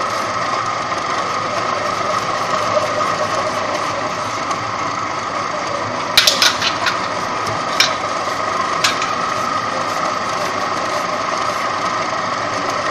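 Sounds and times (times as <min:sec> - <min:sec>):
machine droning: 0:00.0 - 0:12.9
metallic clicks and clanks: 0:06.2 - 0:07.2, 0:07.8 - 0:08.1, 0:08.8 - 0:09.2.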